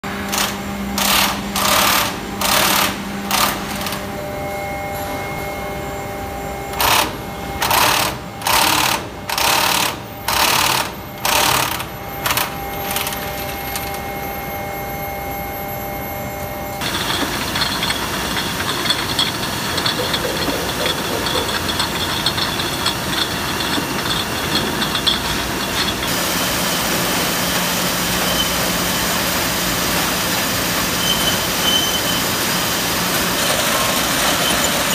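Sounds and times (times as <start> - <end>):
high steady whine: 0.0 - 34.9
machinery hum: 0.0 - 34.9
dense machine clatter: 16.8 - 26.2, 32.6 - 34.9.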